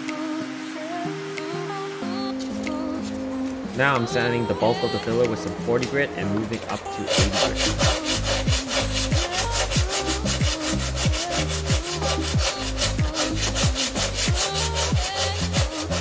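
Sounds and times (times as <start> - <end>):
background music with bass: 0.0 - 16.0
sandpaper scraping: 4.7 - 16.0.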